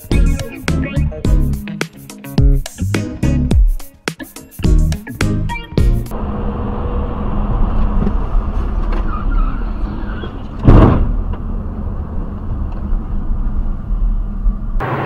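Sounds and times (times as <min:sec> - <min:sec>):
car engine and road noise: 0:06.1 - 0:15.0
loud thump: 0:10.6 - 0:11.2.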